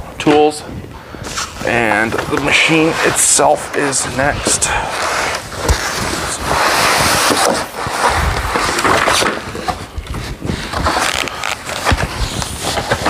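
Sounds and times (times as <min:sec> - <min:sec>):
packaging rustling and scraping: 0:01.2 - 0:13.0.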